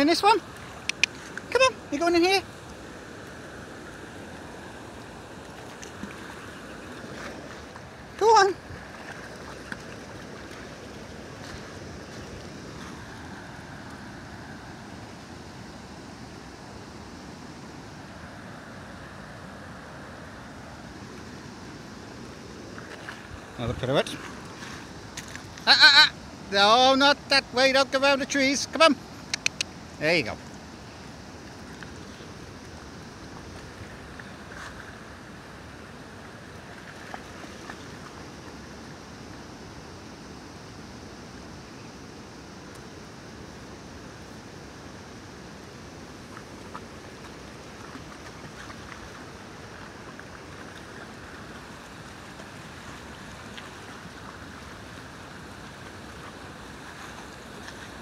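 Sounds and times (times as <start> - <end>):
river water rushing over weir: 0.0 - 58.0
dog splashing in water: 5.4 - 13.1.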